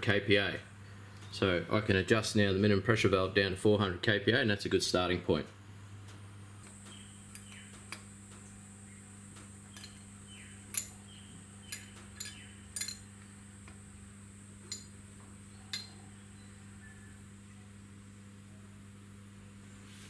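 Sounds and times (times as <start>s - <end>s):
faint steady hum: 0.0s - 20.0s
spanner clicking on metal: 10.7s - 11.0s, 11.7s - 13.1s, 14.6s - 14.9s.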